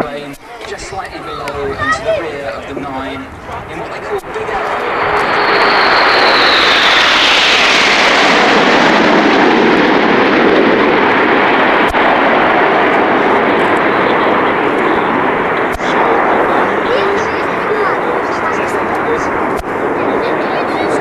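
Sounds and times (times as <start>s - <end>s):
jets passing overhead: 0.0s - 21.0s.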